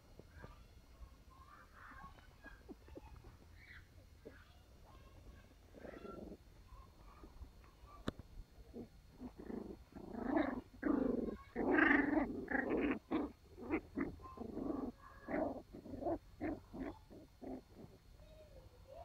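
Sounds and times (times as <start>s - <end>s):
puppies vocalising while playing: 5.5s - 7.4s, 8.6s - 18.2s.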